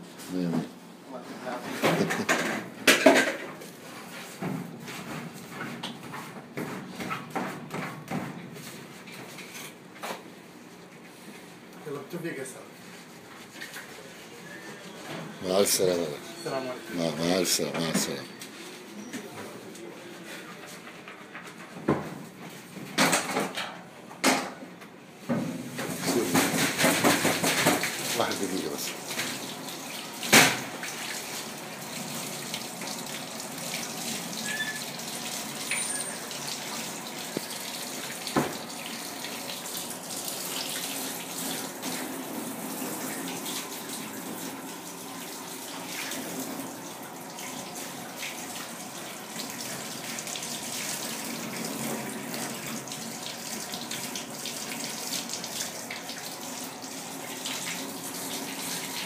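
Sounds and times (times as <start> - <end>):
tap water running into sink: 25.8 - 59.0.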